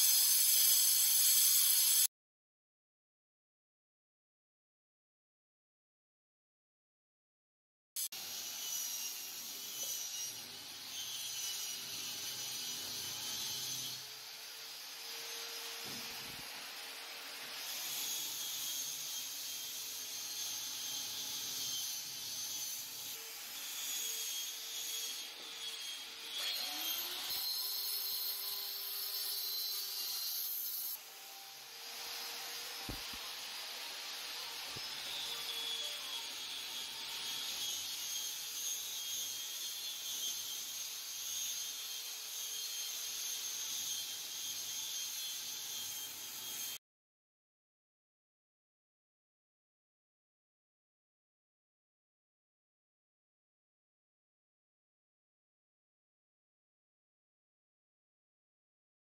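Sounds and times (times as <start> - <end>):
stone tiles scraping on wall: 32.8 - 33.3.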